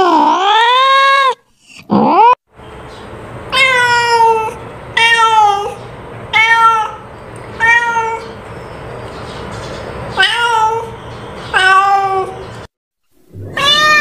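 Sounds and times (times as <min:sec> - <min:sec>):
cat meowing: 0:03.5 - 0:07.0, 0:07.6 - 0:08.4, 0:10.2 - 0:12.4, 0:13.4 - 0:14.0.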